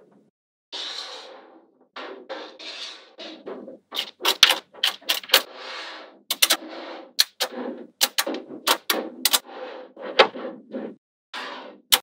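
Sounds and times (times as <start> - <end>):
magnetic balls rattling and sliding: 2.5 - 5.5, 6.3 - 12.0
magnetic balls clicking together: 6.3 - 6.6, 7.2 - 9.4.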